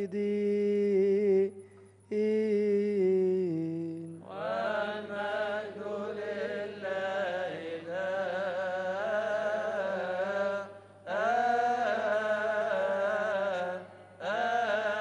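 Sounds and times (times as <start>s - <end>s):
man chanting: 0.0s - 5.8s
group chanting together: 4.2s - 15.0s.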